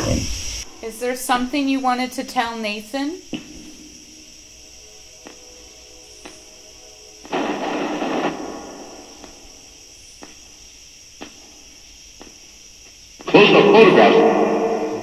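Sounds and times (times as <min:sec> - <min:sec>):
loud burst of radio static: 0:07.3 - 0:09.0, 0:13.2 - 0:14.7
radio static hiss with faint clicks: 0:11.2 - 0:14.1.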